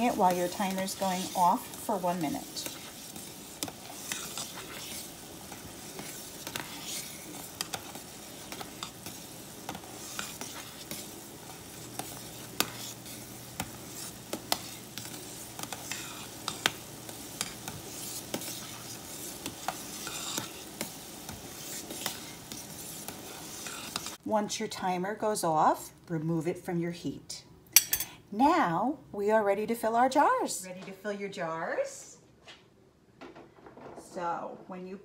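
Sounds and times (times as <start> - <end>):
jelly bubbling in a pot: 0.0 - 24.2.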